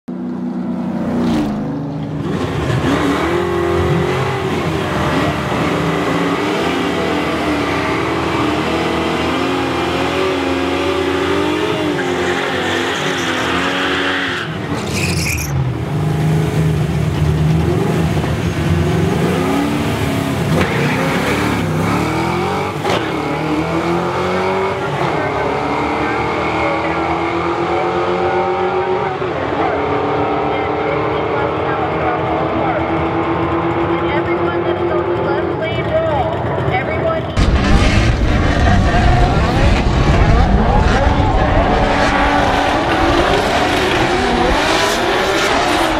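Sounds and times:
car engines revving: 0:00.1 - 0:45.9
cars accelerating hard: 0:00.1 - 0:45.9
tyre squeal: 0:11.9 - 0:15.6.

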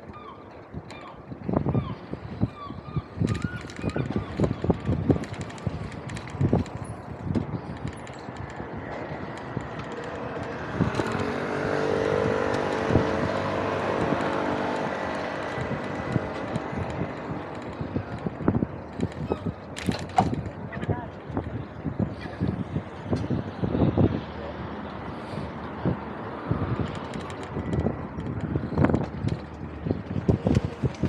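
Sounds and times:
vehicle engine passing by: 0:09.8 - 0:17.9.

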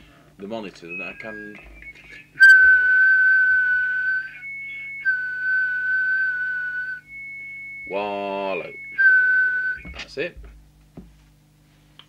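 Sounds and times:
fainter higher tone: 0:00.8 - 0:10.0
high-pitched electronic test tone: 0:00.8 - 0:10.0.

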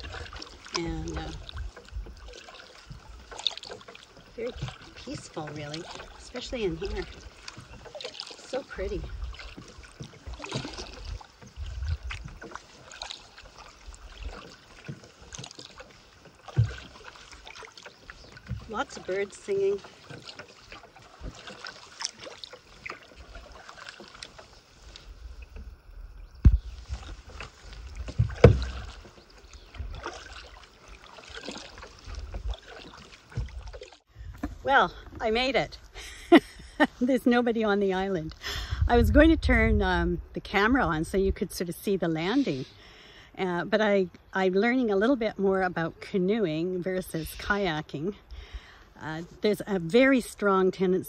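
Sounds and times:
wind rumbling on microphone: 0:00.0 - 0:03.3, 0:04.1 - 0:15.4, 0:22.8 - 0:42.8
paddle strokes in water: 0:00.0 - 0:51.0
birds singing: 0:17.6 - 0:19.1, 0:28.7 - 0:30.1
low thump: 0:26.4 - 0:26.7, 0:28.0 - 0:29.0.

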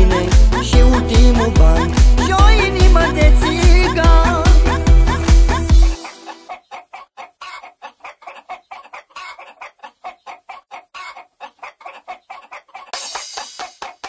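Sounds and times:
music: 0:00.0 - 0:06.4, 0:13.0 - 0:14.0.

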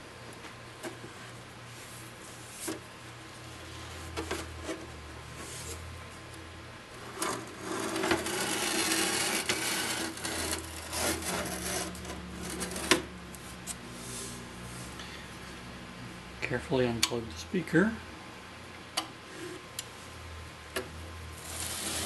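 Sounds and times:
panel scraping against cabinet: 0:07.0 - 0:13.1, 0:21.4 - 0:22.0.

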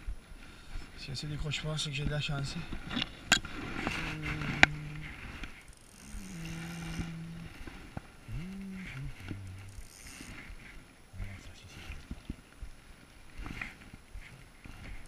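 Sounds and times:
man humming: 0:03.8 - 0:05.4, 0:06.0 - 0:10.4.

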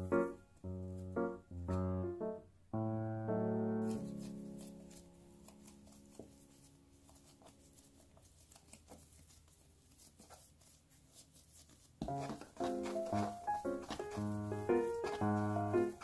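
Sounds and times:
piano note: 0:00.0 - 0:06.0, 0:12.0 - 0:16.0
dough pats and squishes: 0:03.8 - 0:16.0.

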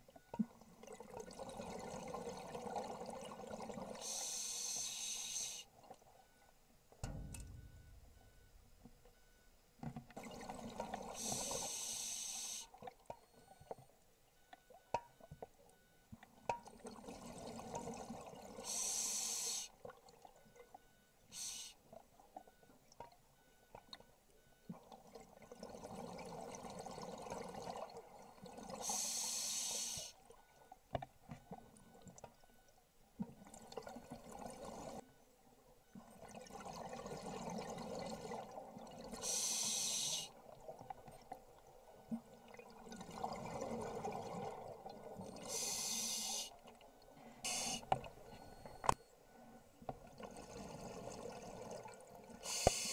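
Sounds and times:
regulator breath hiss: 0:04.0 - 0:05.7, 0:11.2 - 0:12.7, 0:18.7 - 0:19.7, 0:21.3 - 0:21.8, 0:28.8 - 0:30.2, 0:39.2 - 0:40.3, 0:45.5 - 0:46.5, 0:47.4 - 0:47.9, 0:52.4 - 0:52.9
exhaled bubbles rushing: 0:42.5 - 0:45.5.

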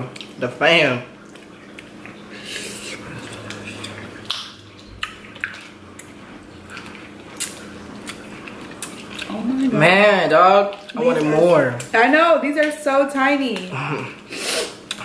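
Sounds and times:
wet sucking and slurping: 0:02.1 - 0:05.5, 0:13.9 - 0:15.0.

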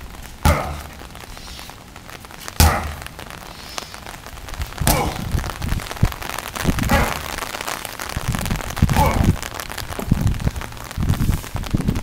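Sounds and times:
steady hiss: 0:00.0 - 0:12.0
sledgehammer striking a tire: 0:00.4 - 0:00.8, 0:02.6 - 0:03.0.

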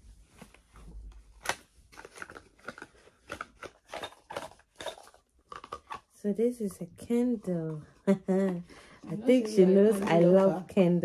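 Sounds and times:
packaging crinkling and rustling: 0:00.0 - 0:06.2.

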